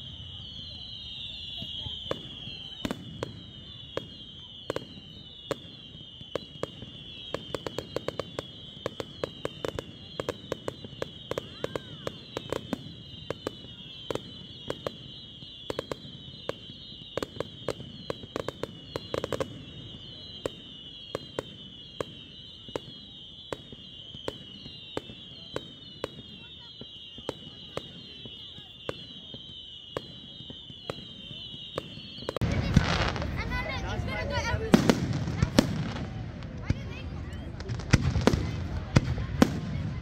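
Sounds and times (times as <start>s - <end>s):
high falling whistle: 0.0s - 37.5s
fireworks cracking and banging: 0.0s - 40.0s.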